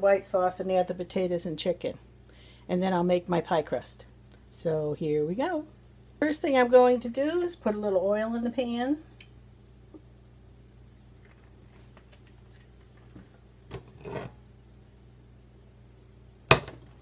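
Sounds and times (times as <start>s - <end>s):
metal scrape: 13.9s - 14.4s.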